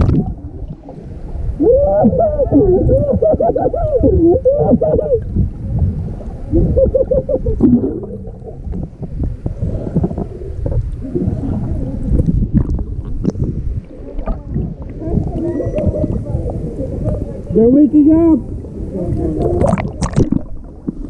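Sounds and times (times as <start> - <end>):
underwater churning and bubbling: 0.0 - 21.0
water splashing at surface: 18.2 - 21.0.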